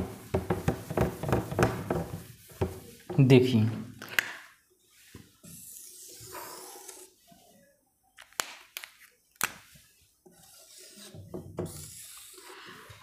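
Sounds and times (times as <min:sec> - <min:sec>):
marker squeaking on whiteboard: 0:05.4 - 0:07.2, 0:10.3 - 0:12.9.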